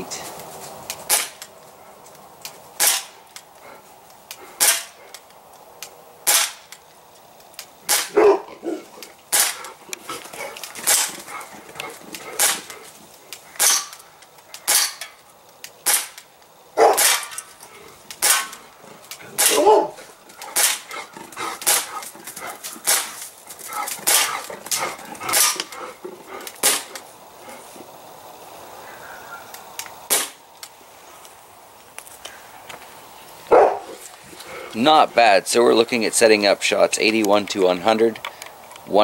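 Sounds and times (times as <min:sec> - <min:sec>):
bb pistol firing sharp pops: 0:00.9 - 0:01.5, 0:02.4 - 0:03.5, 0:04.3 - 0:06.8, 0:07.5 - 0:08.4, 0:09.0 - 0:09.8, 0:10.6 - 0:11.2, 0:11.8 - 0:17.4, 0:18.1 - 0:19.8, 0:20.4 - 0:21.0, 0:21.6 - 0:22.0, 0:22.8 - 0:23.3, 0:23.9 - 0:25.8, 0:26.5 - 0:27.0, 0:29.8 - 0:30.7.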